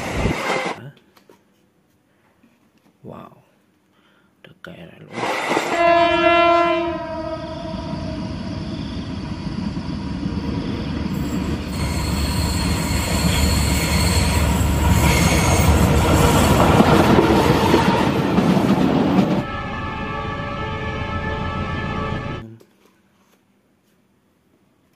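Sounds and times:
locomotive horn: 5.2s - 8.6s, 19.4s - 22.4s
high wheel squeal: 7.1s - 16.7s
train wheels rolling: 7.7s - 19.5s.

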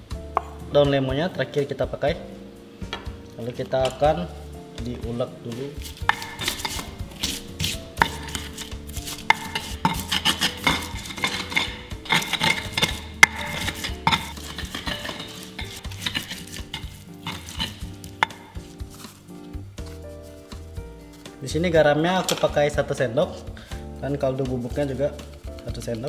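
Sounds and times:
spices crunching and scraping: 5.6s - 21.4s
stone pestle pounding in mortar: 5.8s - 19.0s.

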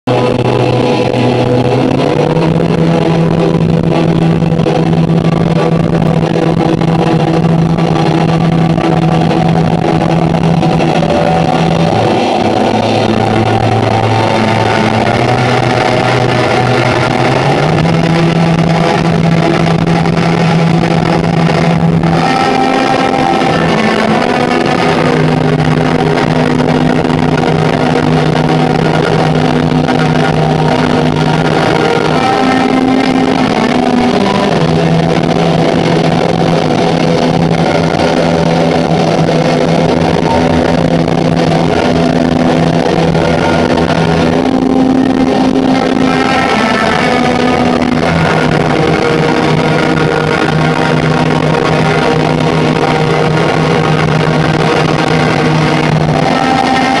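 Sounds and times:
electric guitars and violin music: 0.0s - 57.0s.

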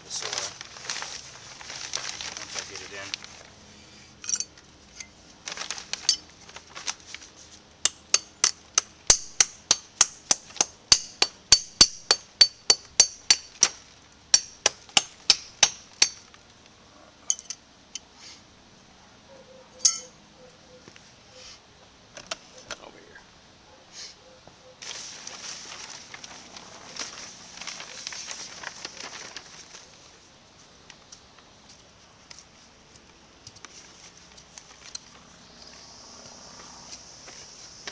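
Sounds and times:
hammer striking: 7.9s - 13.6s, 14.3s - 16.2s, 19.8s - 20.1s.

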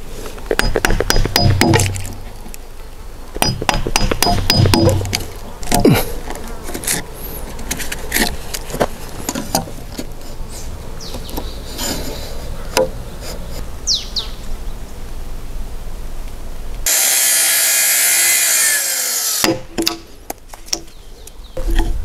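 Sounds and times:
chisel paring wood: 0.6s - 2.1s, 3.4s - 6.0s
tools knocking on wood: 0.6s - 2.1s, 3.4s - 5.2s.

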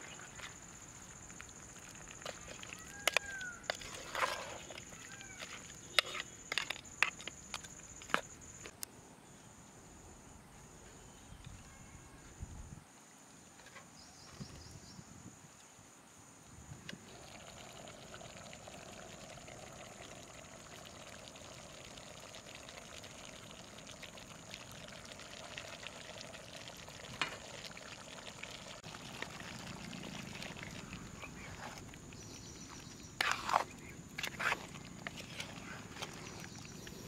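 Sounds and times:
curry simmering and sizzling in a pot: 17.1s - 36.7s.

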